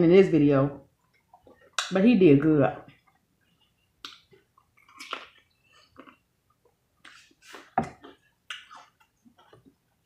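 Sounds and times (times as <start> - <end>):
chewing and mouth smacks: 4.0 - 9.6.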